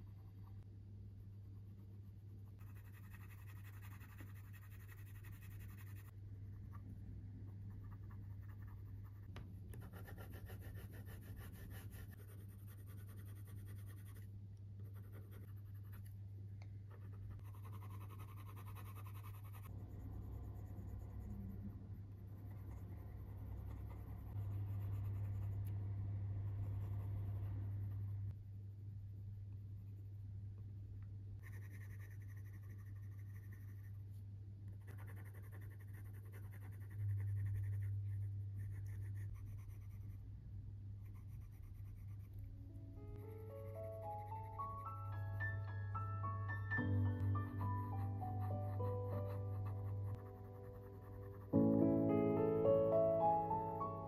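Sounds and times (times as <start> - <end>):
low hum: 0.0 - 54.0
pencil scratching on paper: 1.2 - 6.9, 7.5 - 16.2, 16.9 - 21.4, 22.1 - 25.7, 31.4 - 34.1, 34.7 - 40.2, 41.0 - 42.5, 47.9 - 51.7.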